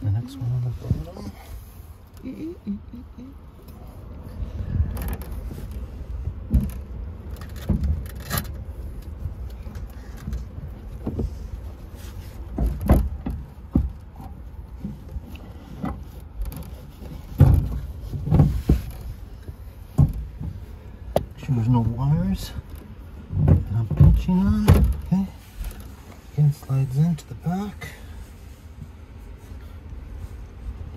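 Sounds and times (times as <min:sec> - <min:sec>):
low rumble: 0:00.0 - 0:30.9
heavy thumps: 0:12.4 - 0:21.4, 0:23.2 - 0:26.0.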